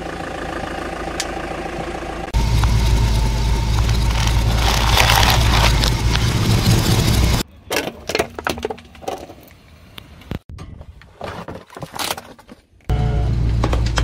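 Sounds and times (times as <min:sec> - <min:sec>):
low engine rumble: 0:00.0 - 0:07.4
tyre crunching plastic toy: 0:04.0 - 0:06.3.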